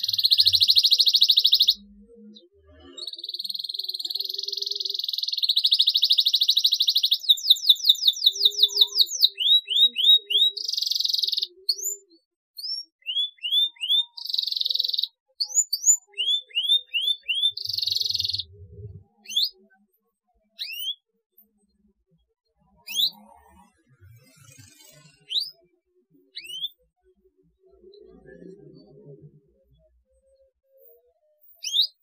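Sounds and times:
canary singing: 0.0s - 19.6s, 20.5s - 21.1s, 22.8s - 23.3s, 24.1s - 26.9s, 30.3s - 32.0s.

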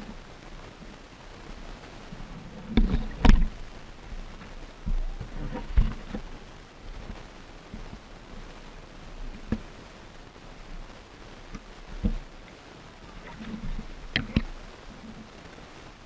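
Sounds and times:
underwater water sloshing: 2.0s - 8.1s, 11.5s - 15.4s.

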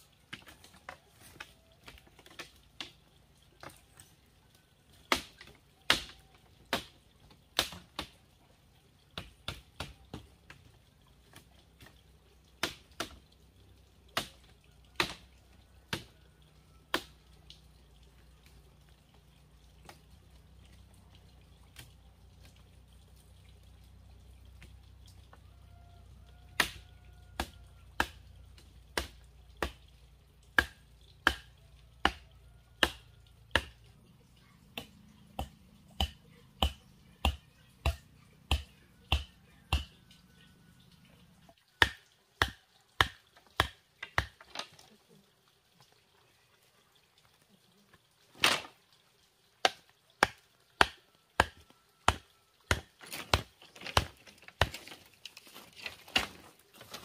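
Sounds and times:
chopping strikes on bamboo: 5.0s - 8.2s, 12.6s - 13.2s, 14.1s - 15.2s, 15.9s - 16.1s, 16.9s - 17.2s, 26.5s - 28.2s, 28.9s - 29.8s, 30.5s - 32.2s, 32.8s - 33.8s, 34.7s - 40.0s, 41.8s - 44.6s, 49.6s - 54.9s.

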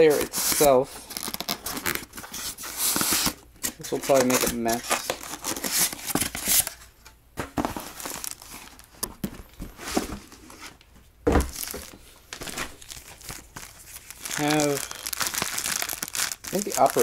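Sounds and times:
rustling of styrofoam packaging: 0.0s - 6.9s, 7.5s - 17.0s
thump: 11.2s - 11.6s.

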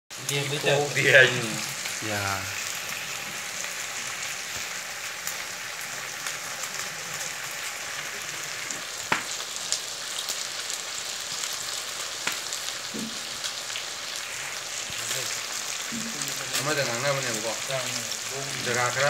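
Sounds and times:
meat sizzling in a wok: 0.1s - 19.0s
fat spattering pops: 8.8s - 9.5s, 12.2s - 13.3s.

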